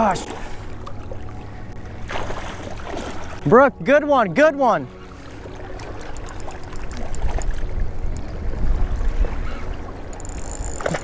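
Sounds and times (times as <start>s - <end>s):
fishing reel ticking: 6.0s - 8.4s, 10.0s - 11.0s
wind rumbling on microphone: 6.8s - 11.0s.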